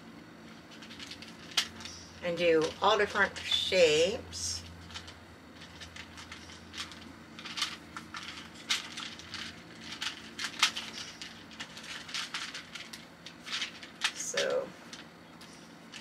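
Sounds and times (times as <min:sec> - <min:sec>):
magnetic blocks clicking: 0:00.5 - 0:03.6, 0:04.5 - 0:16.0.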